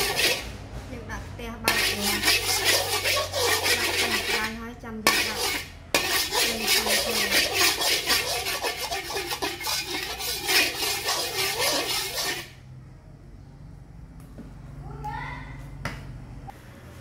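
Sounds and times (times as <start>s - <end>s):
metal spatula scraping wok: 0.0s - 0.6s, 1.6s - 12.6s.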